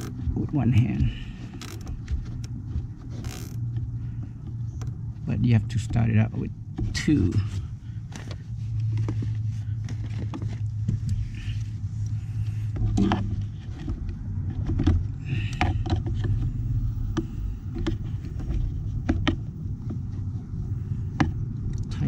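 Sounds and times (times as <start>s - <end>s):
hands handling wire and zip tie: 0.0s - 0.3s, 1.3s - 3.8s
steady low hum: 0.0s - 22.0s.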